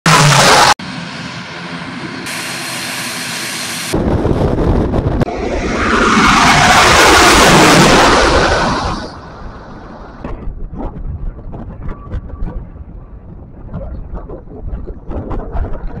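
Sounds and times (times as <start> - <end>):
aircraft engine drone: 0.0 - 10.2
turboprop engine noise: 0.0 - 16.0
rush of aircraft noise: 0.1 - 16.0.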